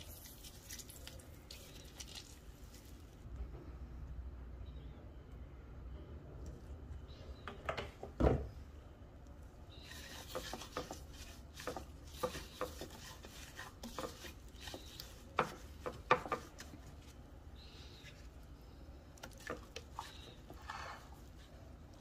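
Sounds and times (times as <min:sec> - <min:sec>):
hand rubbing food in a bowl: 0:09.7 - 0:22.0.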